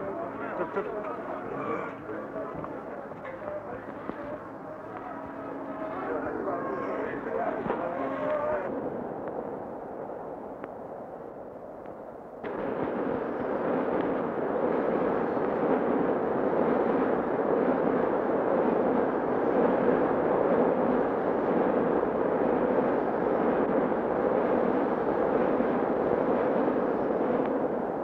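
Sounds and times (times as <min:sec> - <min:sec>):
train rushing roar: 0:00.0 - 0:08.7.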